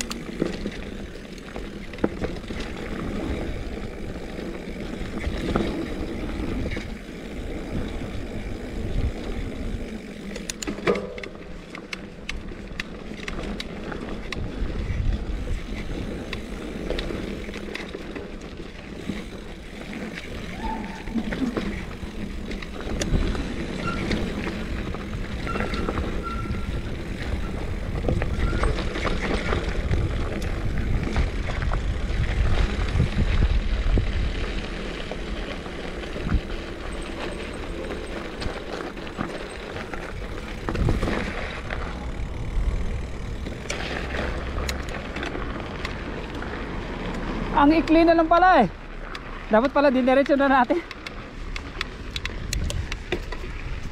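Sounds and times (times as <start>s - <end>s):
bike rattling and clicking: 0.0s - 53.9s
bike tyres rolling on dirt: 0.0s - 53.9s
tyres on loose gravel: 0.0s - 53.9s
wind buffeting microphone: 14.3s - 17.5s, 19.0s - 35.2s, 36.0s - 46.8s, 51.4s - 53.9s.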